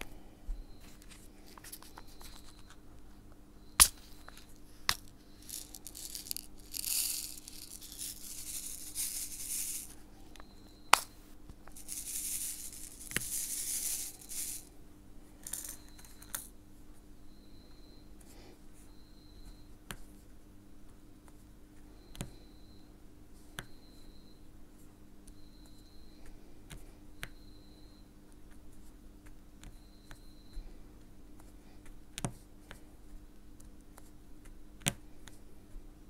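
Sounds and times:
resin beads rattling in tray: 0:04.9 - 0:10.0, 0:11.7 - 0:14.7, 0:15.4 - 0:16.5.

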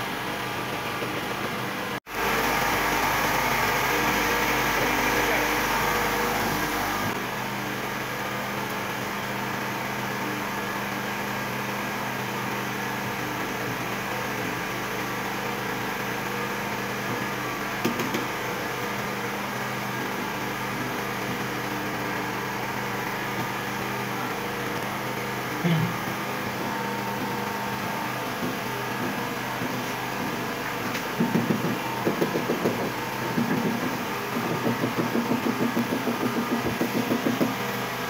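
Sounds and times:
steady machine hum: 0:00.0 - 0:38.0.

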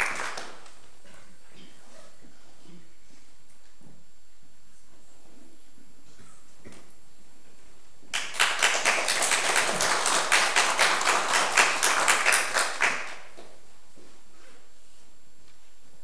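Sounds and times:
audience applauding: 0:00.0 - 0:00.8, 0:08.1 - 0:13.3.

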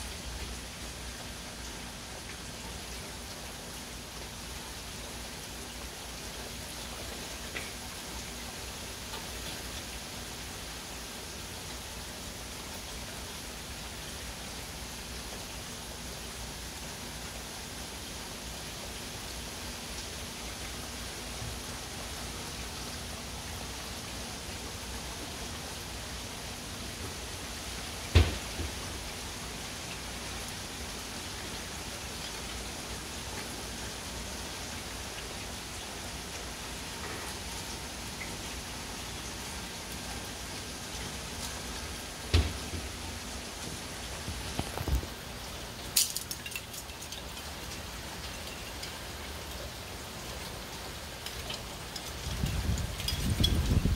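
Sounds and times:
rain hissing: 0:00.0 - 0:53.9
wind rumbling on microphone: 0:52.2 - 0:53.9.

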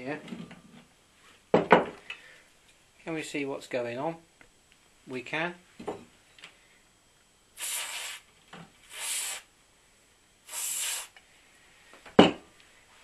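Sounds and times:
aerosol spray hissing: 0:07.6 - 0:09.5, 0:10.4 - 0:11.2.

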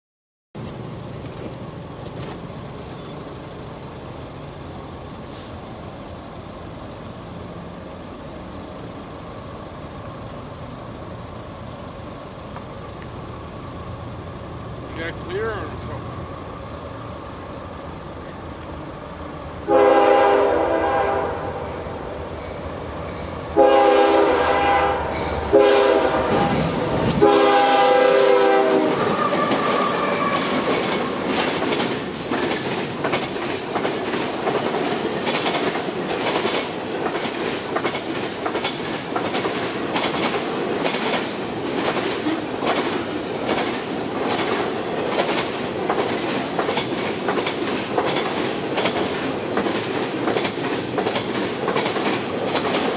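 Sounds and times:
train rumble: 0:00.6 - 0:52.9
wheels clacking over rail joints: 0:01.2 - 0:03.5, 0:29.1 - 0:52.9
locomotive horn: 0:19.7 - 0:21.7, 0:23.5 - 0:30.8.

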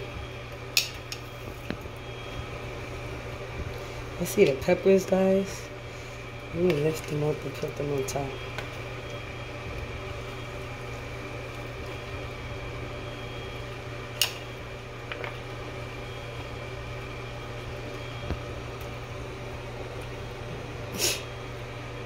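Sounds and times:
steady mechanical hum: 0:00.0 - 0:22.0.

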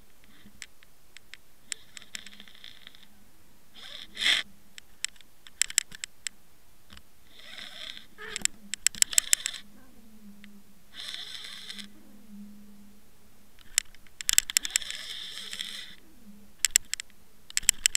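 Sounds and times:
faint low hum: 0:00.0 - 0:17.9
sharp clicks and knocks: 0:04.8 - 0:07.1, 0:13.6 - 0:15.6, 0:16.6 - 0:17.9.

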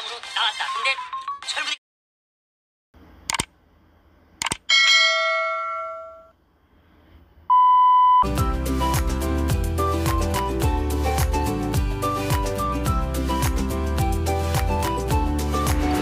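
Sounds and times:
bell chime: 0:04.7 - 0:06.3
music with a beat: 0:08.2 - 0:16.0.

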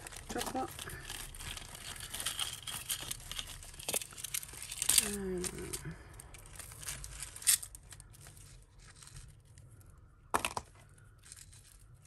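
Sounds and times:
packaging rustling and crinkling: 0:00.0 - 0:10.0.

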